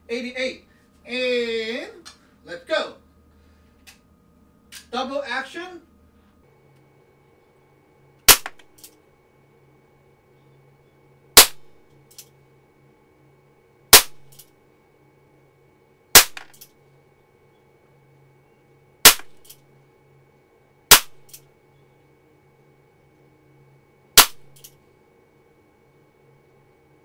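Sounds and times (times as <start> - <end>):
air pistol cracks: 8.3 - 8.7, 19.1 - 19.6, 20.9 - 21.4, 24.2 - 24.7.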